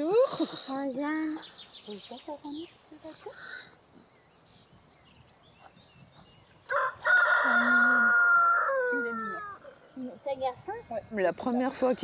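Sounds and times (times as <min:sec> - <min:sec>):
rooster crowing: 0:06.7 - 0:09.6.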